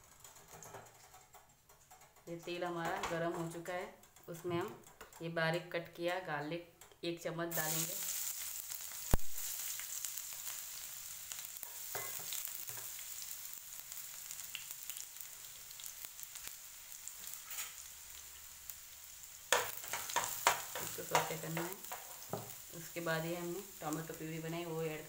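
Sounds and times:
garlic sizzling in hot oil: 7.5s - 25.0s
spatula scraping pan: 17.2s - 17.9s.

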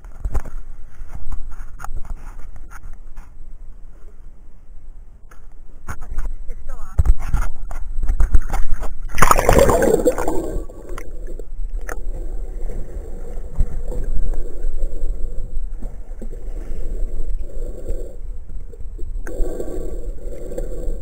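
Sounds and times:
water splash: 9.1s - 10.7s
underwater gurgling: 9.1s - 21.0s.

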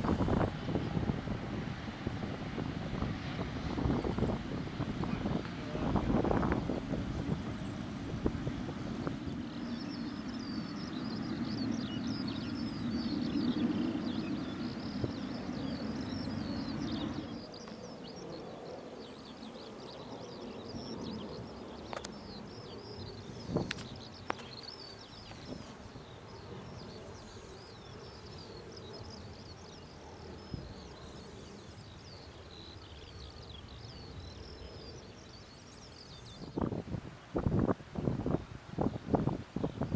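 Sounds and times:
jet engines low rumble: 0.0s - 39.9s.

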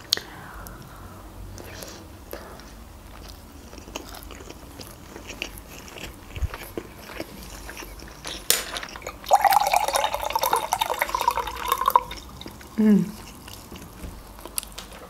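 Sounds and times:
soft chewing and mouth clicks: 0.0s - 0.9s, 1.5s - 9.4s, 11.2s - 15.0s
juice pouring into a glass: 9.0s - 12.7s.

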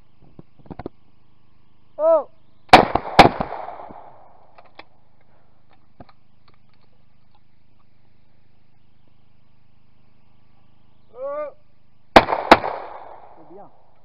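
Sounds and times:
person shouting a call: 2.0s - 2.4s, 11.1s - 11.7s
shotgun shots: 2.7s - 4.5s, 12.1s - 13.6s.

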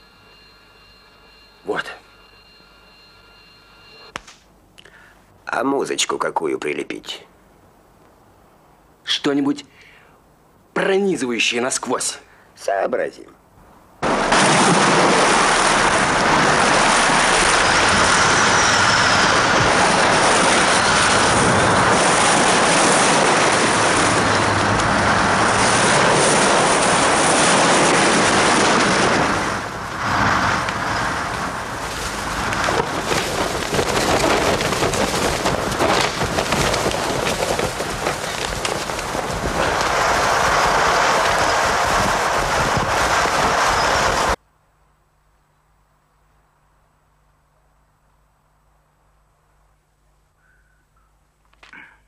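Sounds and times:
gusty wind: 13.6s - 44.4s
storm surf breaking: 14.0s - 44.4s.

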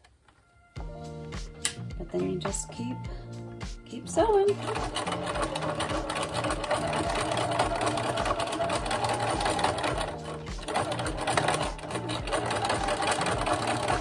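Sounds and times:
sewing machine stitching: 4.2s - 14.0s.

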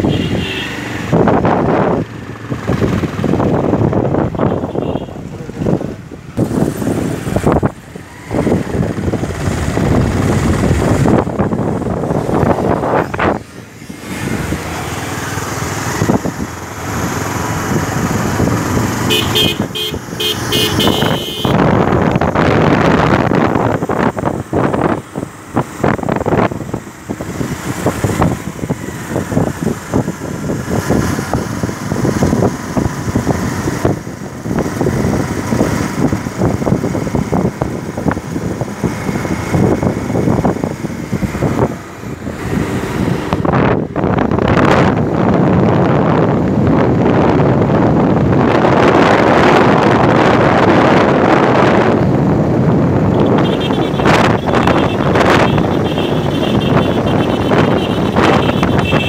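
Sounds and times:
vehicle horn beeping rapidly: 0.0s - 0.8s, 4.3s - 5.2s, 19.0s - 21.7s, 53.1s - 59.0s
motorcycle engine running: 0.0s - 47.3s, 51.5s - 59.0s
wind buffeting microphone: 0.9s - 20.2s, 20.8s - 59.0s.

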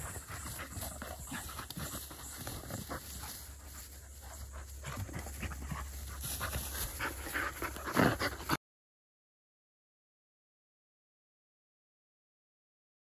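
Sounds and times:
puppies panting: 0.0s - 8.6s
puppies scuffling in grass: 0.0s - 8.6s.

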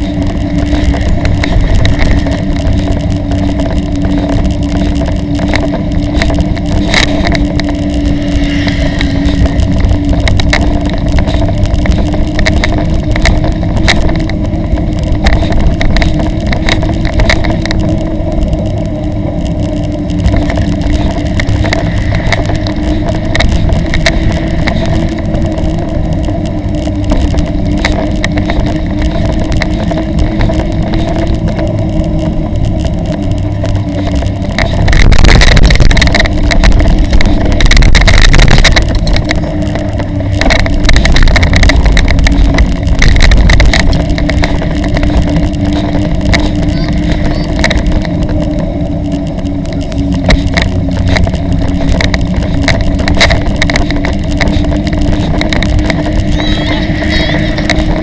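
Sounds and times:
bicycle trailer rumbling and rattling: 0.0s - 58.0s
low steady hum: 0.0s - 58.0s
wind buffeting microphone: 0.0s - 58.0s.

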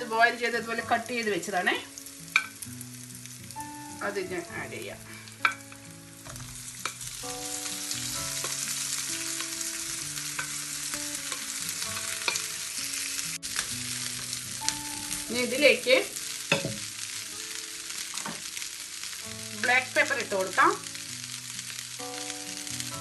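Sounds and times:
potatoes sizzling in frying pan: 0.0s - 23.0s
spoon knocking in pan: 2.3s - 2.6s, 5.4s - 12.6s, 16.4s - 17.1s, 18.0s - 18.6s.

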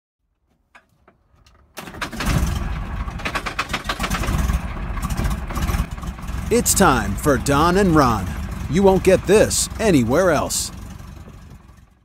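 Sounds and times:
engine running roughly: 2.1s - 12.0s.

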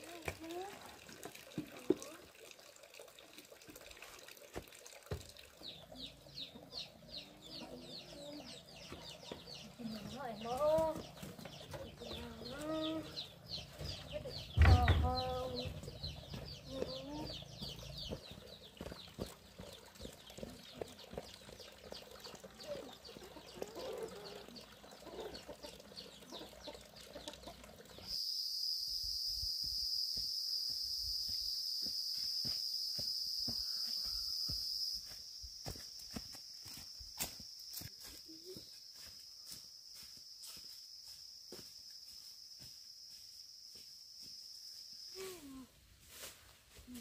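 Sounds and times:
chicks peeping: 5.6s - 20.8s, 25.0s - 28.1s
chickens clucking: 5.7s - 28.2s
high-pitched insect drone: 28.1s - 45.7s.

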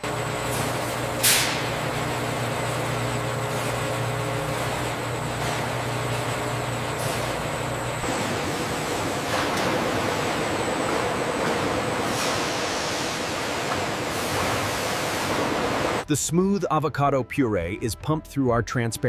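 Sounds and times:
machinery hum and rush: 0.0s - 16.0s
sharp hiss of air: 12.0s - 13.5s.

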